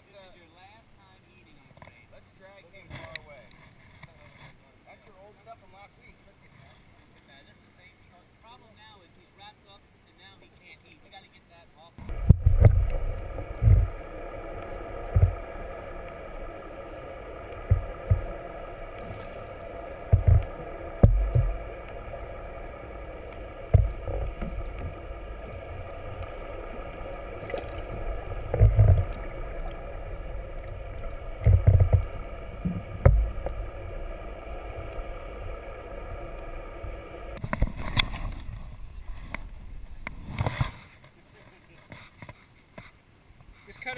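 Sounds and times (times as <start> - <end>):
steady hum with tones: 12.0 - 41.0
water thumping on camera: 12.0 - 41.0.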